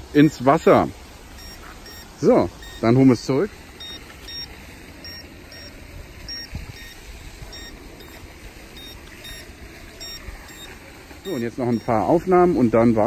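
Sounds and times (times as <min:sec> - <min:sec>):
short high beeps: 0:01.4 - 0:03.0, 0:03.8 - 0:05.7, 0:06.3 - 0:08.2, 0:08.8 - 0:12.1.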